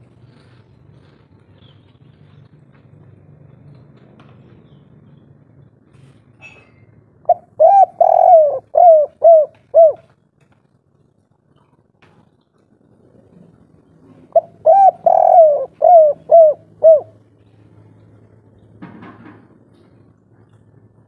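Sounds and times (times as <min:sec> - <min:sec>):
dove cooing: 0:07.3 - 0:10.1, 0:14.1 - 0:17.3.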